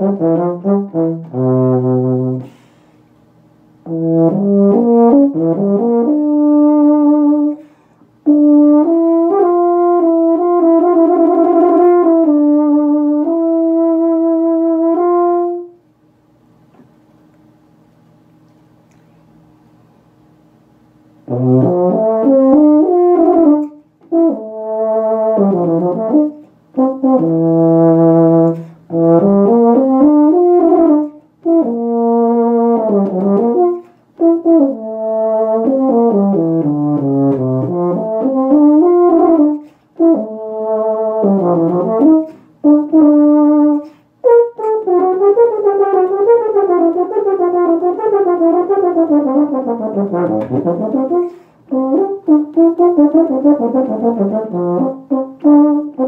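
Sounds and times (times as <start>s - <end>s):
player breathing: 2.4s - 3.2s, 7.6s - 8.2s
euphonium solo: 21.3s - 56.0s.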